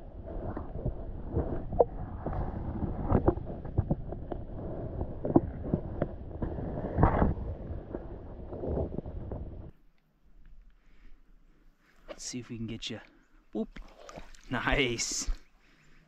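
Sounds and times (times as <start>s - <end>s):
muffled underwater churning: 0.0s - 9.8s.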